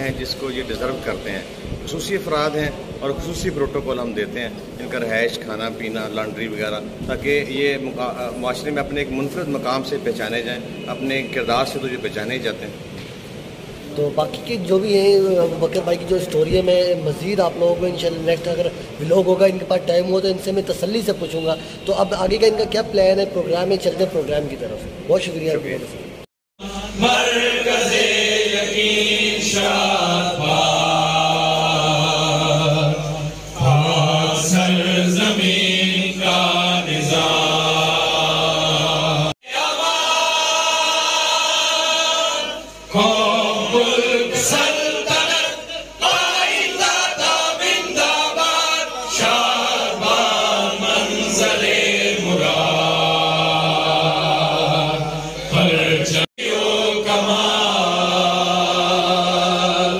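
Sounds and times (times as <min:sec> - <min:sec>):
men singing in unison: 0:26.6 - 0:59.9
men singing into a microphone: 0:26.6 - 0:59.9.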